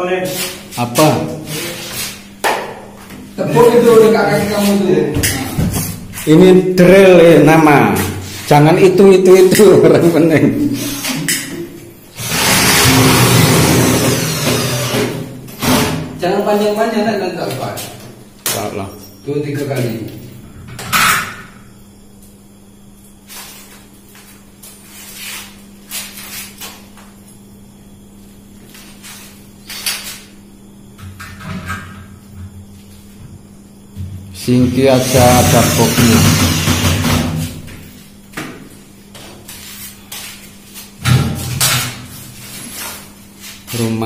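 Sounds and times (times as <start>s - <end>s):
rustling scraping noises: 23.3s - 26.6s, 42.2s - 43.9s.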